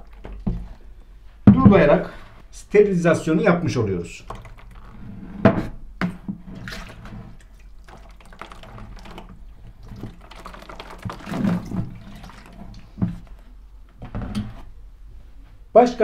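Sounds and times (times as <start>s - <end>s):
water sloshing in a bucket: 0.0s - 0.9s, 4.2s - 5.3s, 6.1s - 14.7s
plastic bucket knocking: 1.5s - 2.0s, 7.9s - 13.4s
boiling water pouring: 4.2s - 5.1s, 6.6s - 13.6s.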